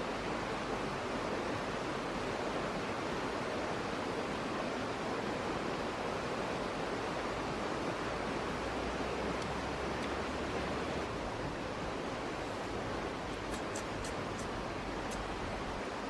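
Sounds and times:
faint high ticks: 9.4s - 10.2s, 13.3s - 15.3s.

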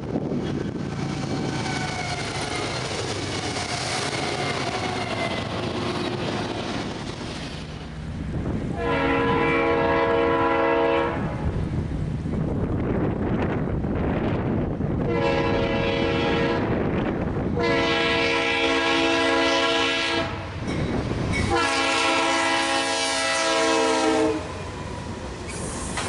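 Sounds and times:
freight train rolling past: 0.0s - 26.0s
locomotive air horn blast: 8.7s - 11.4s, 15.1s - 16.8s, 17.6s - 20.4s, 21.5s - 24.6s.

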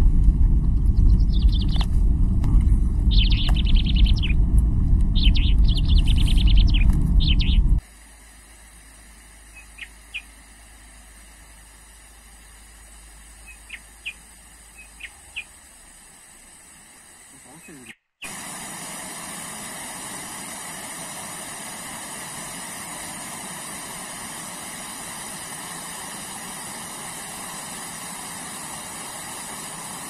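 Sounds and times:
vehicle driving rumble: 0.0s - 7.8s
bird trilled calls: 1.0s - 1.8s, 3.1s - 4.4s, 5.2s - 7.7s, 9.5s - 10.3s, 13.4s - 15.6s, 17.6s - 18.3s
faint hiss: 7.8s - 30.0s.

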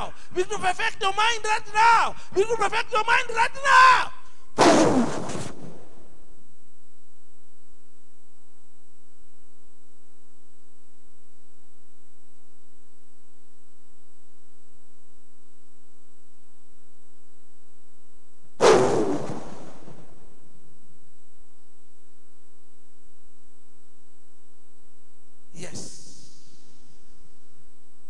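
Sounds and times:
loud wordless shout: 0.0s - 4.3s
electrical hum: 0.0s - 28.0s.

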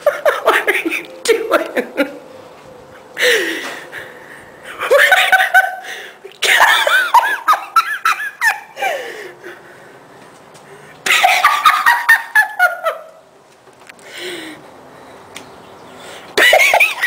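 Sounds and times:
person laughing high-pitched: 0.0s - 2.3s, 4.7s - 9.0s.

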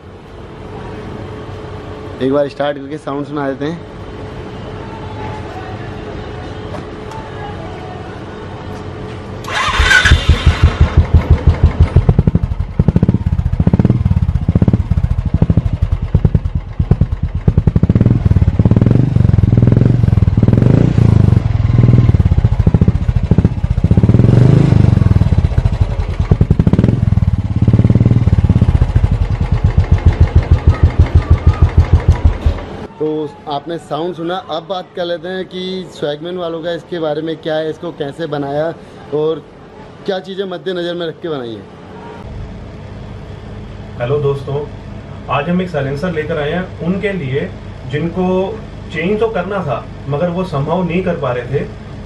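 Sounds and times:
motorcycle engine idling: 9.5s - 32.9s.

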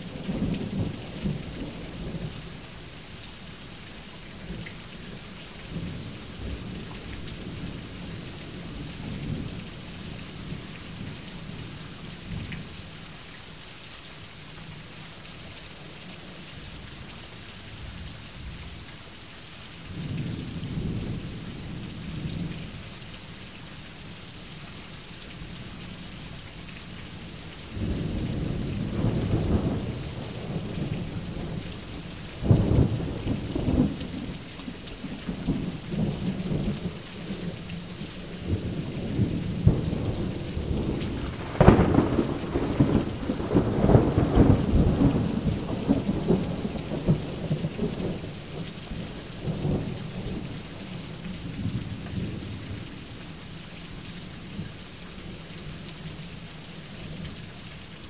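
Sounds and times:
rain hissing: 0.0s - 13.6s, 18.8s - 55.4s
thunder rumbling: 38.4s - 48.3s.

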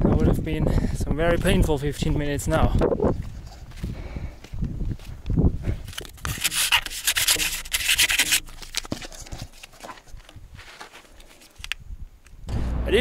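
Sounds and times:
hand rubbing sticker scraping: 6.0s - 10.0s.

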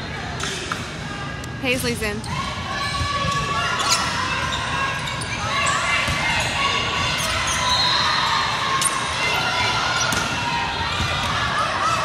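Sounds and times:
sneakers squeaking on court: 1.8s - 8.0s.

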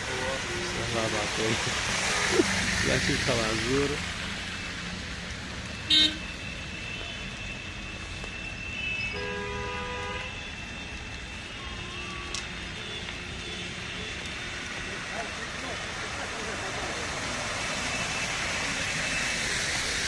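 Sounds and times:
low rumble of traffic: 0.0s - 20.0s
car horn toot: 5.8s - 6.3s, 8.8s - 10.3s, 11.6s - 14.3s
quieter car horn: 5.8s - 7.6s, 8.4s - 10.5s, 11.4s - 14.8s.

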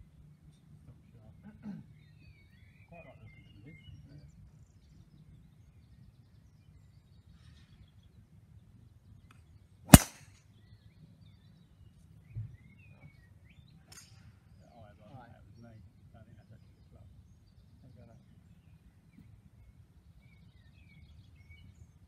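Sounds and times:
golf club striking ball: 9.9s - 10.3s.

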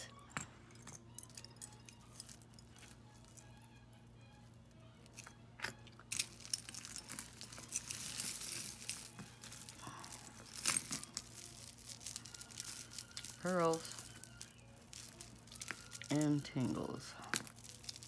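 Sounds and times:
jewelry pieces clicking together: 0.0s - 18.0s
bag crinkling: 6.1s - 18.0s.

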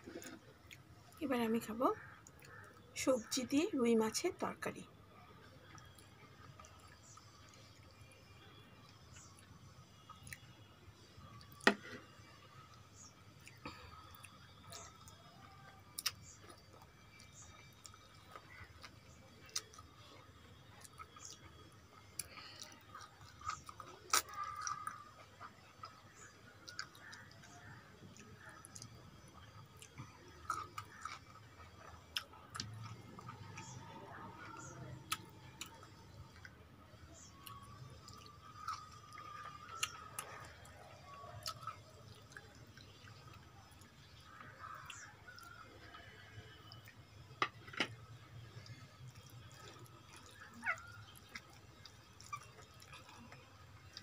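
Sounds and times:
close chewing: 11.3s - 54.0s.

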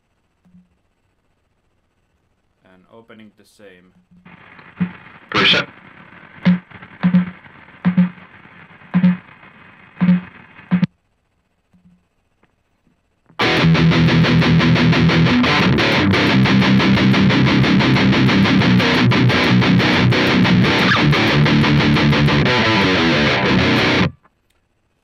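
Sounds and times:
electric guitar riff: 4.3s - 10.9s, 13.4s - 24.2s.

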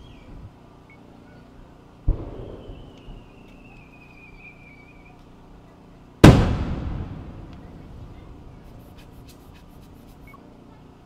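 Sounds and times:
firework whistle: 2.2s - 5.2s
mortar firing thump: 6.2s - 7.6s
firework burst bang with echo: 6.2s - 8.8s.

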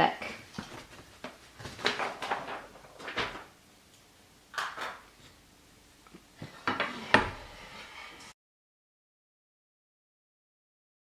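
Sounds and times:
fabric handling bumps and rustles: 0.4s - 3.5s.

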